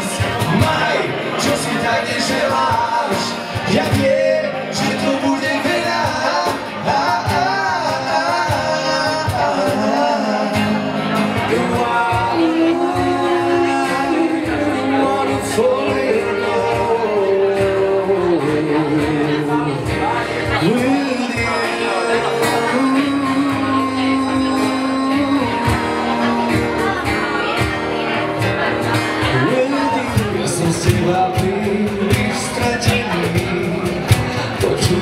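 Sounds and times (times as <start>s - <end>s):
cajon beat: 0.0s - 35.0s
man singing: 0.0s - 35.0s
strummed acoustic guitars: 0.0s - 35.0s.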